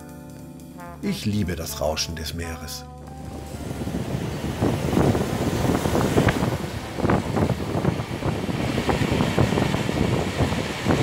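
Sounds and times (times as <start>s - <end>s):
wind buffeting microphone: 3.2s - 11.0s
waves washing on sandy shore: 3.5s - 11.0s.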